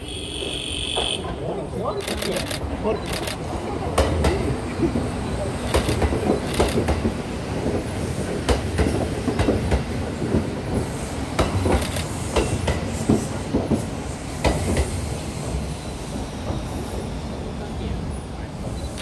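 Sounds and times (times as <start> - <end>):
electric train rumbling past: 0.0 - 19.0
wheels clacking over rail joints: 0.4 - 15.0.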